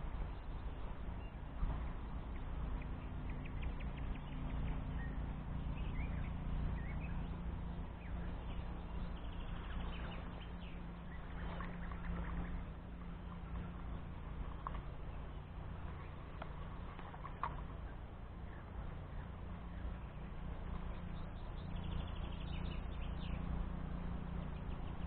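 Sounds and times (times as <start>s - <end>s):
faint clicks: 13.0s - 15.0s, 15.8s - 18.0s.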